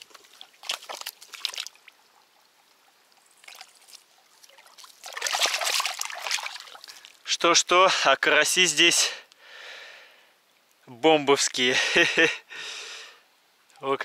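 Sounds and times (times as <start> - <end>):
water splashing and trickling: 0.0 - 9.2.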